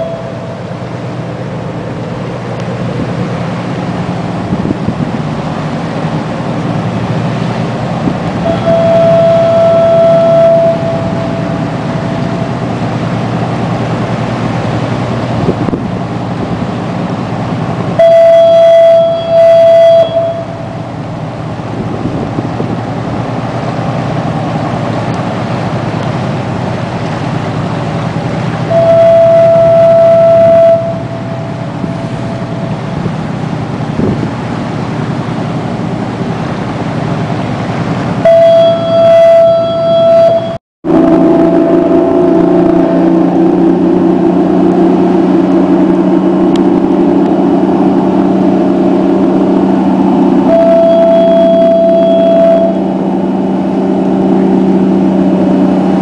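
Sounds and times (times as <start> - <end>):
fog horn blasts: 0.0 - 1.7, 6.7 - 13.9, 17.9 - 21.1, 28.6 - 34.3, 38.2 - 56.0
boat diesel engine drone: 0.0 - 56.0.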